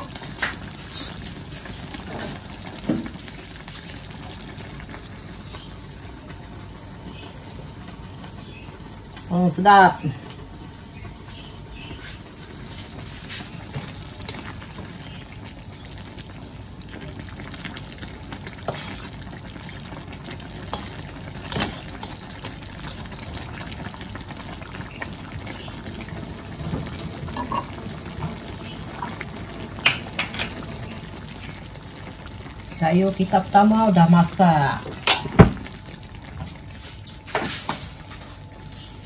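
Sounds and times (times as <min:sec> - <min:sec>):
broth simmering in a wok: 0:00.0 - 0:39.0
spatula scraping a wok: 0:18.6 - 0:19.1.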